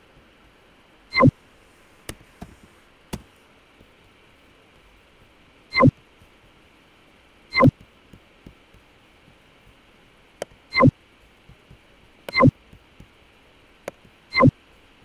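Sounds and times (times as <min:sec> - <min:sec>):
computer mouse clicks: 0:07.5 - 0:08.9, 0:11.5 - 0:13.2, 0:13.8 - 0:14.6.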